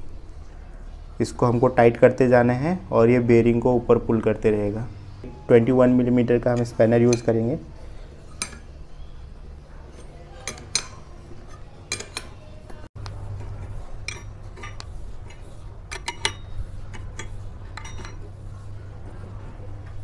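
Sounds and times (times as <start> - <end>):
steady low hum: 0.0 - 20.0
spanner clinking on metal: 6.6 - 7.4, 10.0 - 12.4, 14.1 - 18.3.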